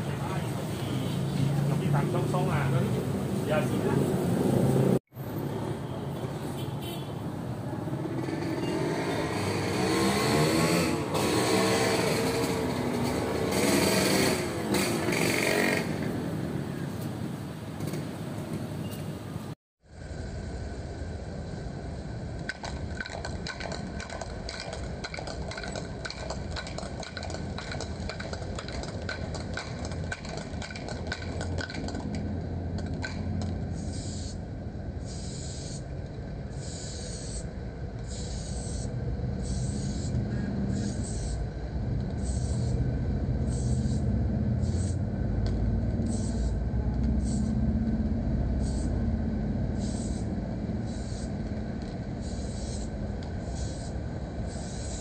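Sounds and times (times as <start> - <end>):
spray can rattling: 22.5 - 34.3, 50.9 - 53.9
spray can hissing: 33.7 - 34.4, 35.0 - 35.8, 36.5 - 41.4, 42.2 - 42.8, 43.4 - 45.0, 46.0 - 46.6, 47.2 - 47.6, 48.6 - 49.0, 49.8 - 55.0.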